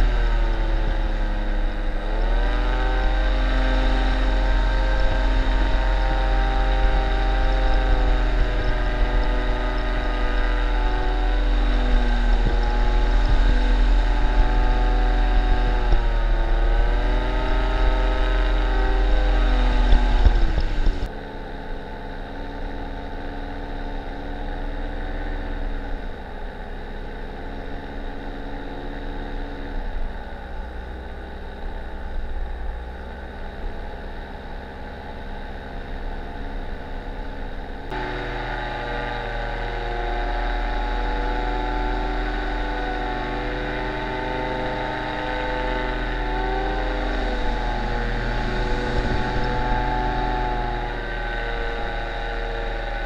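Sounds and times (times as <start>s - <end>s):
paramotor engine and propeller: 0.0s - 53.0s.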